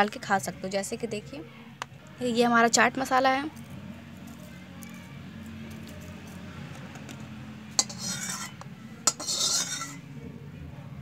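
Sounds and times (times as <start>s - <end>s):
spoon clinking against steel bowl: 7.7s - 10.0s.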